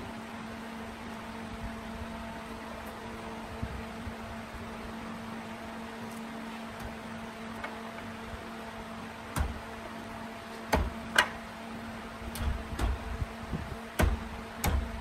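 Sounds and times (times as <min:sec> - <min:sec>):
steady electric hum: 0:00.0 - 0:15.0
knocks and taps on workpiece: 0:09.4 - 0:09.6, 0:10.7 - 0:11.4, 0:12.3 - 0:13.1, 0:14.0 - 0:15.0.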